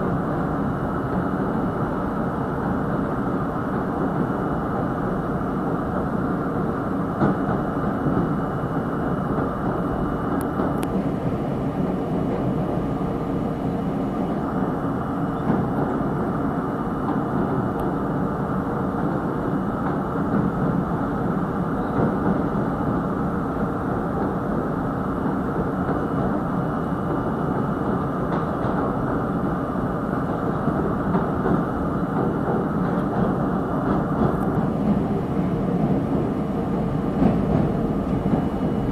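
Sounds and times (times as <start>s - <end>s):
wheels rumbling on rail: 0.0s - 38.9s.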